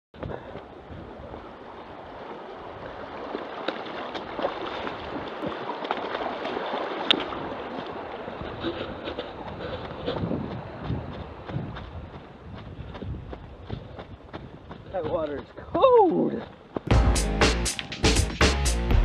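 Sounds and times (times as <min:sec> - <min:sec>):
feet splashing through water: 0:00.2 - 0:16.9
stream rushing over rocks: 0:00.7 - 0:09.2.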